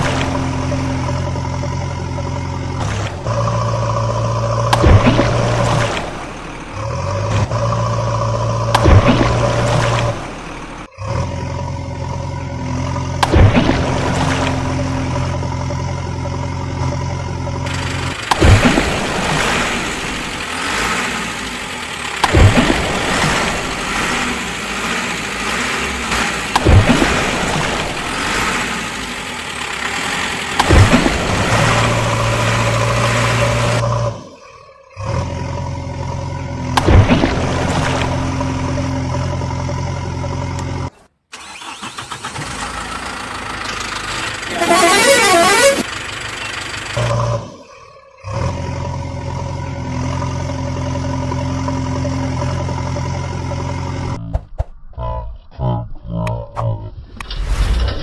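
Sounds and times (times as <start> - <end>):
vehicle engine surging: 0.0 - 54.6
vehicle horn blasts: 44.5 - 45.9.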